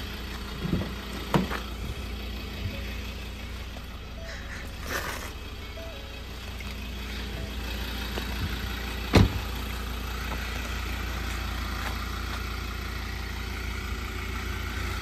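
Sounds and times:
diesel engine idling: 0.0s - 15.0s
loud thump: 9.1s - 9.4s.

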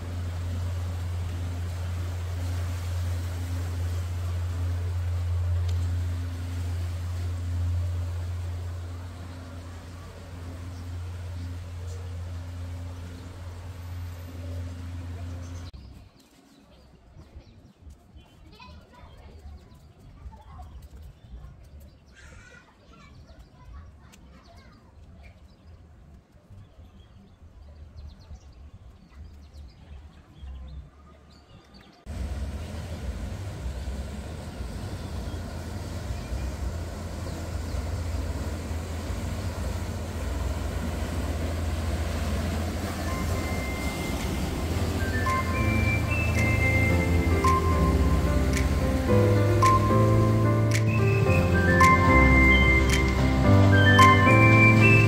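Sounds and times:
wake churning water: 0.0s - 15.7s, 32.1s - 55.0s
boat engine rumble: 0.0s - 16.0s, 32.0s - 55.0s
music: 42.7s - 55.0s.

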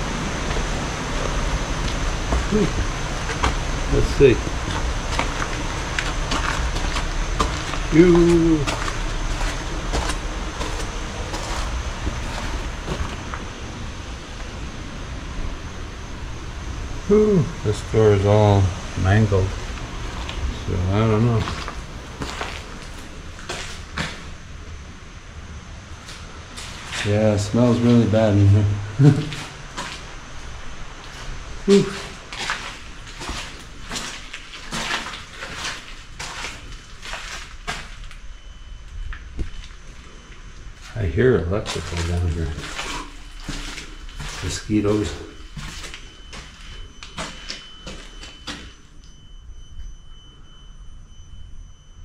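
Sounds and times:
footsteps crunching on gritty floor: 0.0s - 13.7s, 17.7s - 24.4s, 26.0s - 48.8s
steady low rumble: 0.0s - 47.8s
faint high steady tone: 26.9s - 32.3s, 37.8s - 52.0s.

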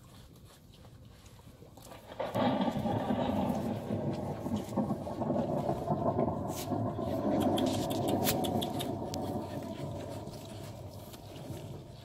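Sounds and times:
thunderstorm through loudspeaker: 2.1s - 12.0s
sharp clicks: 7.2s - 9.3s.

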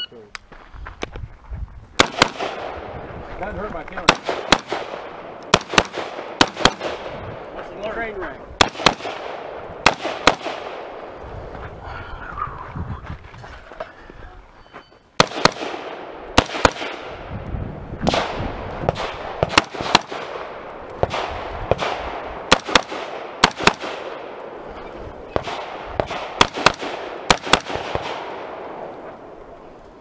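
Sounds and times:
rifle shots echoing: 2.0s - 3.0s, 4.0s - 7.6s, 8.6s - 11.2s, 15.2s - 17.3s, 18.0s - 29.5s.

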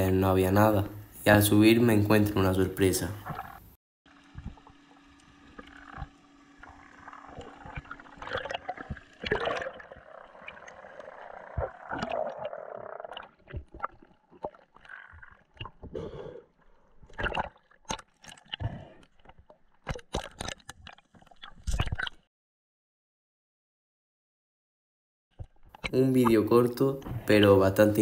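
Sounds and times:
underwater gurgling: 2.9s - 22.3s.

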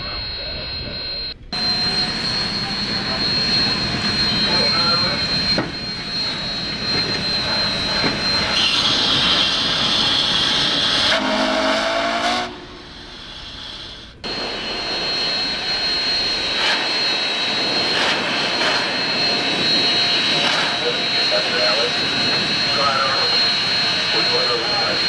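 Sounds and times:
steam locomotive hissing: 1.6s - 25.0s
steam whistle blast: 7.4s - 13.1s.

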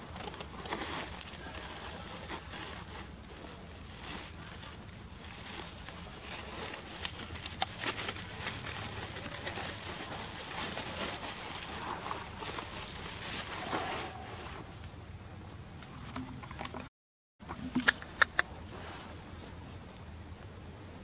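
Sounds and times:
sharp clicks: 17.8s - 18.5s.

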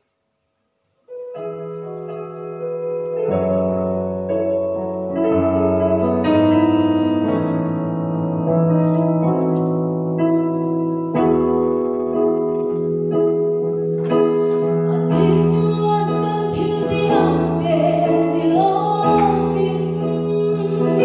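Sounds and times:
electronic keyboard chords: 1.1s - 21.0s.

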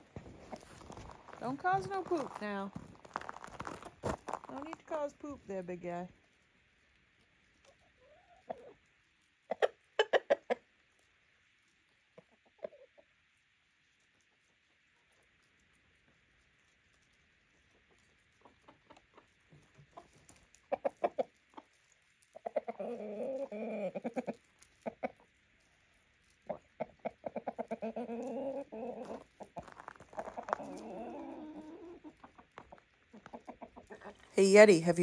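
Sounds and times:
chickens clucking: 9.5s - 10.6s, 17.7s - 21.8s, 22.4s - 25.4s, 26.4s - 34.3s.

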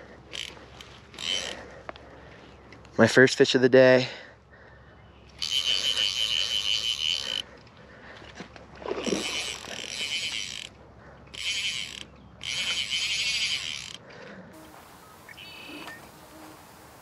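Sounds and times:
fly reel ratchet drag buzzing: 0.3s - 1.6s, 5.4s - 7.5s, 9.1s - 10.7s, 11.3s - 14.0s.

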